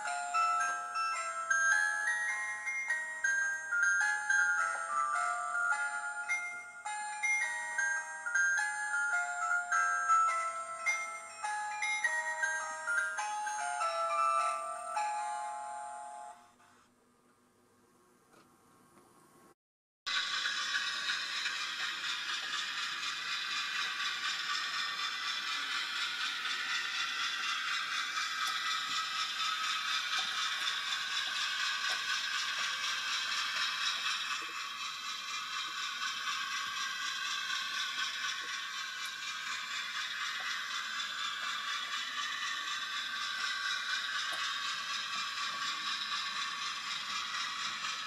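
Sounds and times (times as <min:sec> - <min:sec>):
model train motor whirring: 0:20.1 - 0:48.0.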